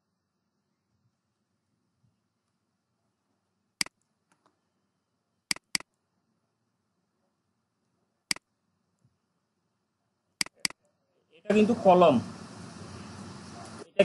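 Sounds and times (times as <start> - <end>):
computer mouse button clicks: 5.5 - 5.9.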